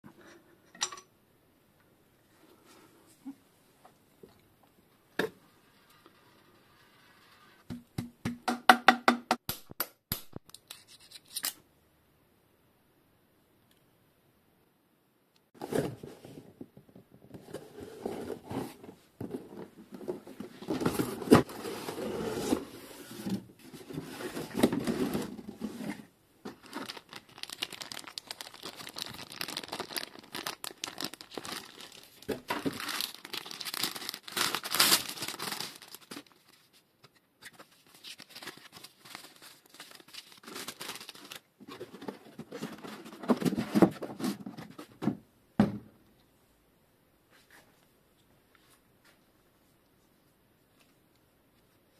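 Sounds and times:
plastic bag crinkling: 0:26.5 - 0:36.5, 0:38.0 - 0:41.5
paper leaflets rustling: 0:26.5 - 0:36.8, 0:37.4 - 0:42.0.

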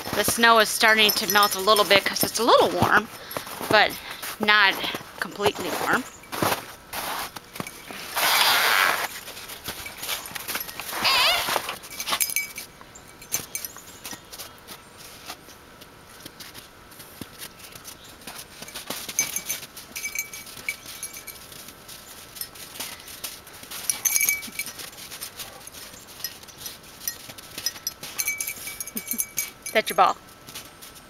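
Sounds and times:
collar tags jingling: 0:00.0 - 0:15.3, 0:17.5 - 0:31.0
dog footfalls in snow: 0:00.1 - 0:12.2.

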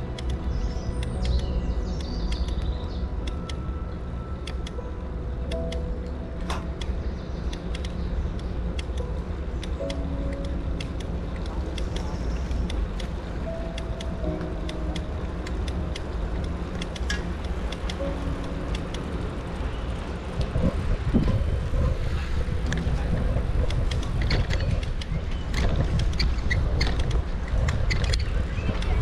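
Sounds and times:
bicycle clicking and rattling: 0:00.0 - 0:03.7, 0:04.3 - 0:29.0
wind and tyre rumble: 0:00.0 - 0:29.0.

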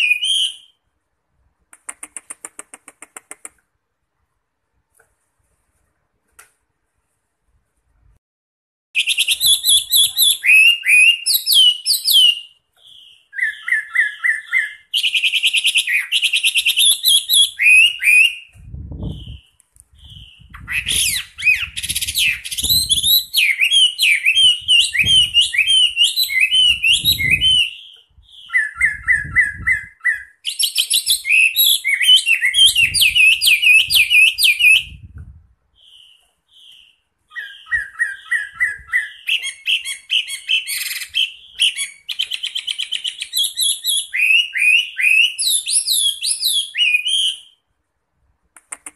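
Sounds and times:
bird singing whistled trills: 0:00.0 - 0:00.8, 0:09.0 - 0:35.1, 0:35.8 - 0:47.6.

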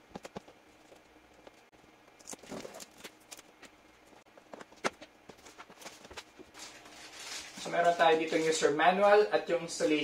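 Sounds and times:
cardboard rustling: 0:02.2 - 0:03.8, 0:04.4 - 0:08.7.

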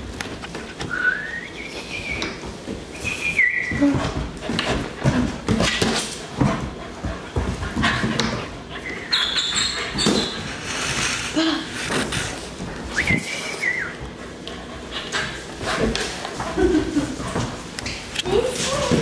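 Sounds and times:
dog whining: 0:08.8 - 0:10.5.

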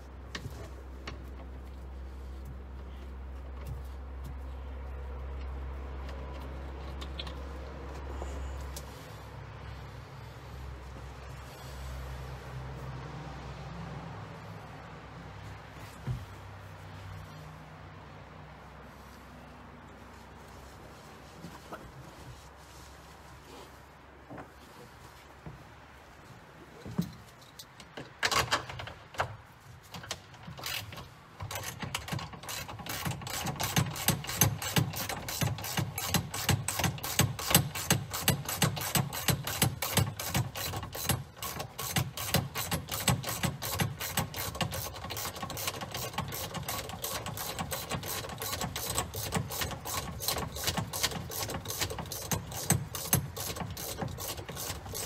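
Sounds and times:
ratchet wrench clicking: 0:31.5 - 0:55.0.

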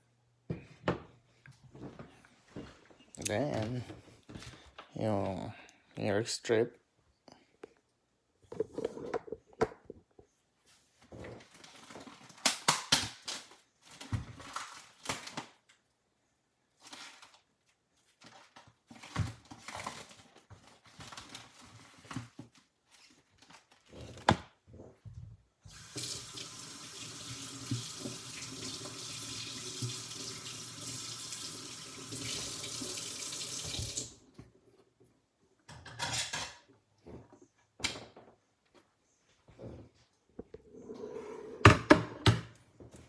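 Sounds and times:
rustling and handling noises: 0:07.5 - 0:12.6, 0:13.2 - 0:15.9, 0:16.6 - 0:25.6.

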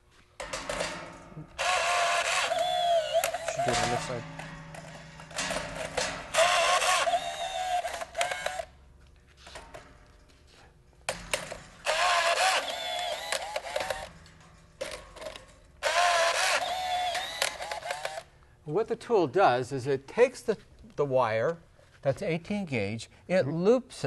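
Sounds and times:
rebar tying tool whirring: 0:00.4 - 0:08.8, 0:11.1 - 0:18.3.

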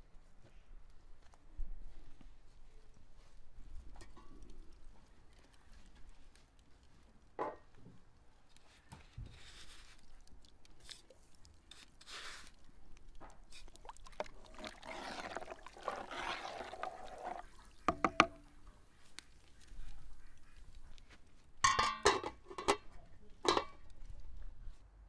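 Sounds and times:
rice poured into boiling water: 0:13.5 - 0:17.9
metal pot lid knocking: 0:17.9 - 0:18.4, 0:21.6 - 0:22.8.

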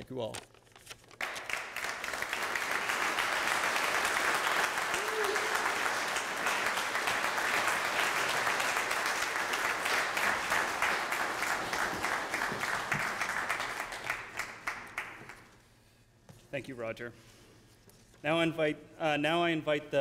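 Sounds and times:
audience applauding: 0:01.2 - 0:15.5.

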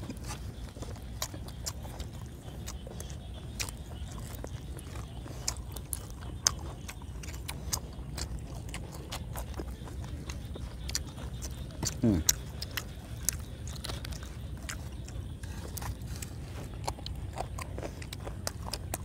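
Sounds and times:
chewing and biting meat: 0:00.0 - 0:19.0
steady low rumble: 0:00.0 - 0:19.0
wet mouth clicks and smacks: 0:05.4 - 0:15.1.

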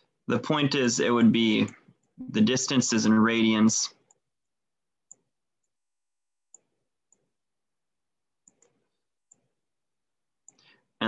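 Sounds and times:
computer mouse clicks: 0:05.1 - 0:05.8, 0:08.4 - 0:09.5.

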